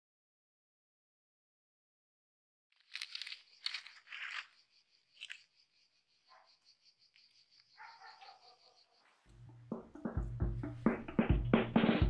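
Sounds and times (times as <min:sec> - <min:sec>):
dry leaves crunching: 0:02.8 - 0:04.6.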